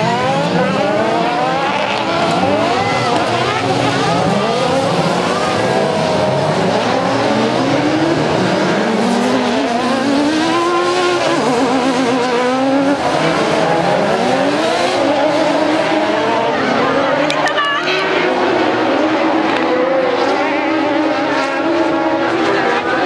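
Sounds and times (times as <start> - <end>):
racing buggy engines revving: 0.0 - 23.0.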